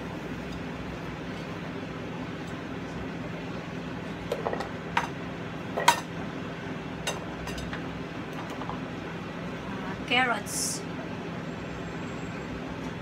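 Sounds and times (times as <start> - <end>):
plates and utensils clinking: 5.8 - 6.1.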